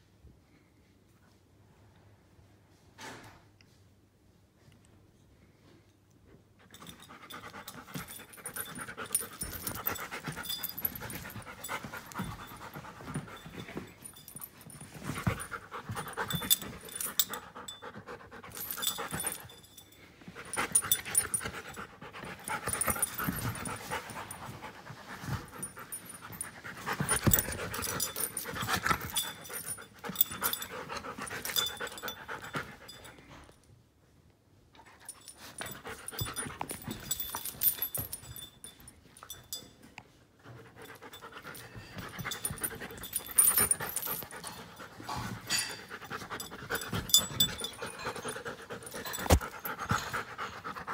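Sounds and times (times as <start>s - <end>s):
dog panting: 6.8s - 19.6s, 40.5s - 50.9s.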